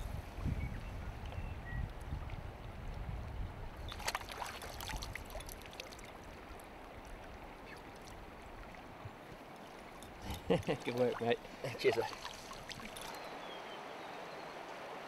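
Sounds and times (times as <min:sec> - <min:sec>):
river running over stones: 0:03.8 - 0:15.0
fish splashing in water: 0:03.9 - 0:06.2, 0:11.1 - 0:13.2.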